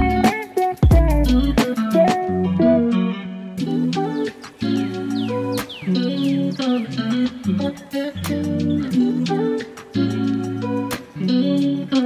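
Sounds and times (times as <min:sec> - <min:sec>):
guitar-led background music: 0:00.0 - 0:12.0.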